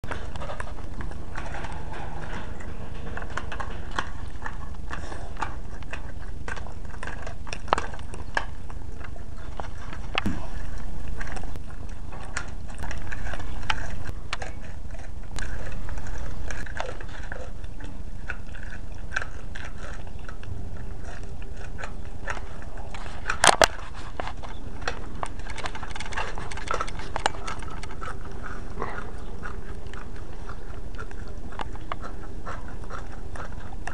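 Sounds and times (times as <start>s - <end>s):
dog licking and chewing food: 0.0s - 33.9s
steady background noise: 0.0s - 33.9s.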